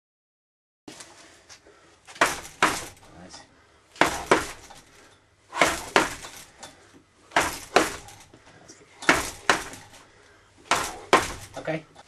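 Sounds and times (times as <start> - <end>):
gloved punches on punching bag: 2.2 - 3.0, 4.0 - 4.8, 5.6 - 6.4, 7.3 - 8.2, 9.1 - 10.0, 10.7 - 11.6.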